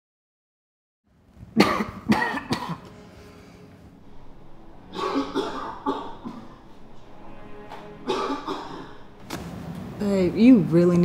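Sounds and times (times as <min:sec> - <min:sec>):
man coughing hard: 0:01.6 - 0:02.9, 0:04.9 - 0:06.6, 0:08.0 - 0:08.9.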